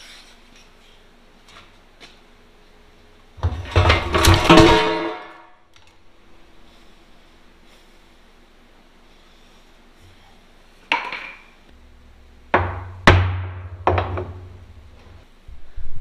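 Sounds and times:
hammer striking steel: 4.2 - 5.5.

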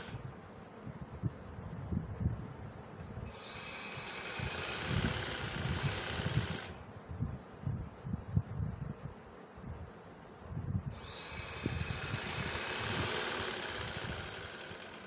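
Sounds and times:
sewing machine whirring: 0.0 - 0.2, 3.3 - 6.8, 10.9 - 15.0.

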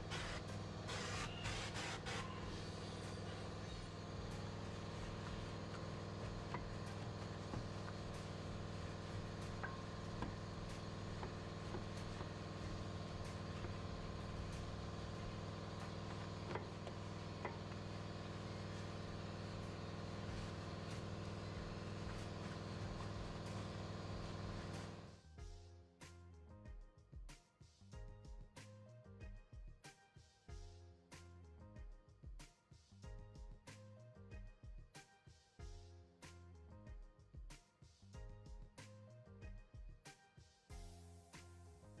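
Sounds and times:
low machine hum: 0.0 - 25.2.

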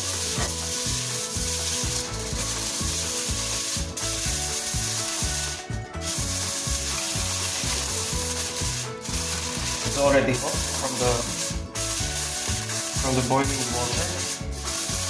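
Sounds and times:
aluminium foil crinkling: 6.0 - 15.0.

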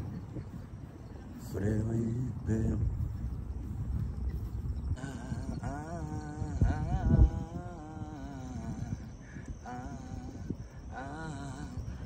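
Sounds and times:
person singing a long note: 5.0 - 12.0.

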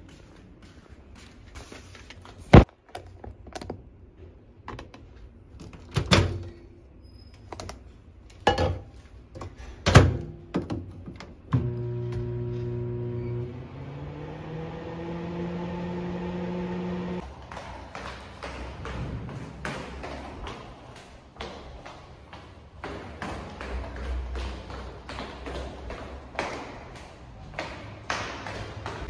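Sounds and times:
microwave oven humming: 11.5 - 17.2.

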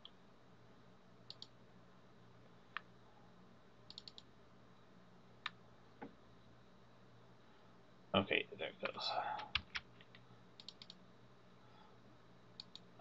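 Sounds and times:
low room hum: 0.0 - 13.0
computer mouse clicks: 1.3 - 1.5, 3.9 - 4.3, 8.8 - 11.0, 12.6 - 12.9.

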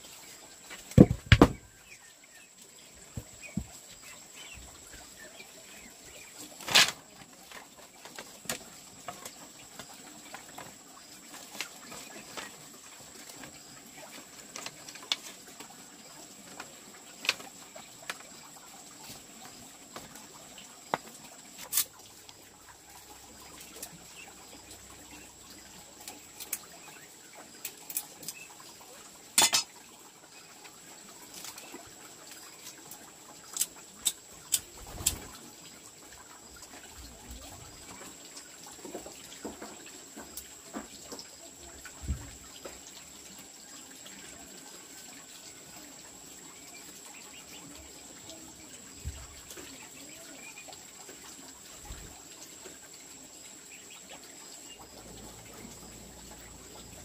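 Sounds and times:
dishes and utensils clinking: 29.4 - 29.7.

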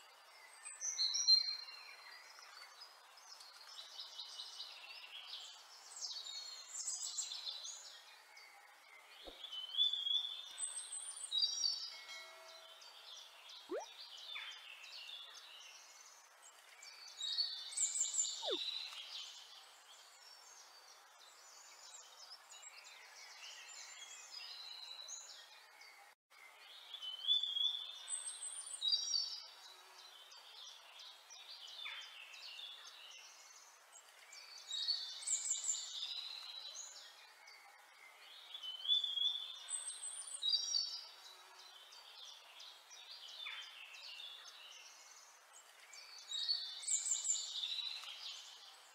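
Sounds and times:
birds chirping: 12.6 - 25.4.

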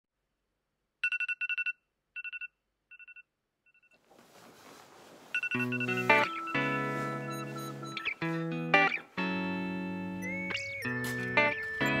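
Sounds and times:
electronic alarm beeping: 5.4 - 8.4.

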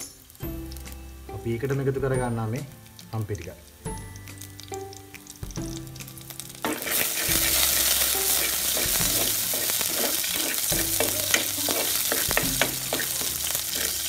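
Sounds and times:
garlic sizzling in hot oil: 0.0 - 14.0
wooden spatula scraping pot: 6.8 - 14.0.

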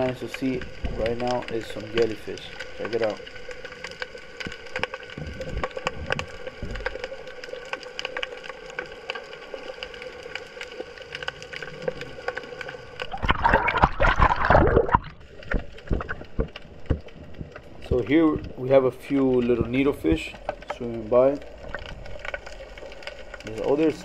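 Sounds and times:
sharp clicks and crackles: 0.0 - 24.0
underwater water wash: 0.0 - 24.0
churning sloshing water: 13.0 - 21.8.

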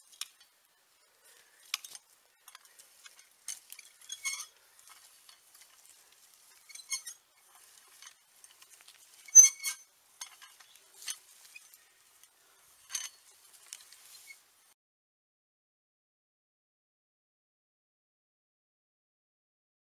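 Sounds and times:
metal tines scraping through soil: 0.0 - 14.6.

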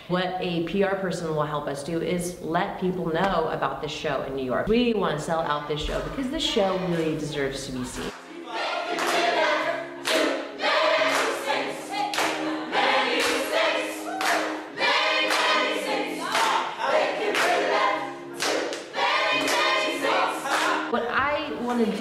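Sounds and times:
choir singing: 8.0 - 21.0
hand claps: 8.9 - 9.4, 10.0 - 10.4, 11.0 - 14.6, 15.2 - 20.9.

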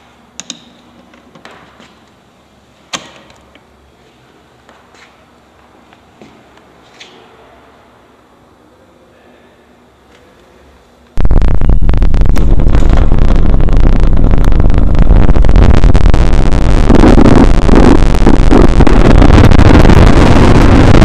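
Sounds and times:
harsh static crackling: 11.2 - 21.0.

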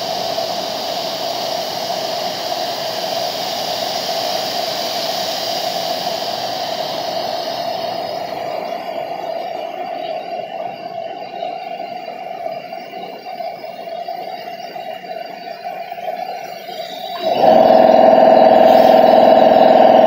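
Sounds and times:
paint spray gun hissing: 0.0 - 10.3, 16.1 - 20.0
steady drone: 16.7 - 20.0.

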